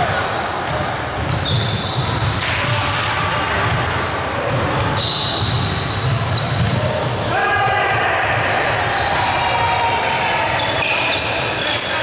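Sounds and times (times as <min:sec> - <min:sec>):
sneaker squeaks: 0:00.0 - 0:02.4, 0:04.6 - 0:07.4, 0:08.8 - 0:09.7, 0:10.4 - 0:12.0
players' voices: 0:05.8 - 0:12.0.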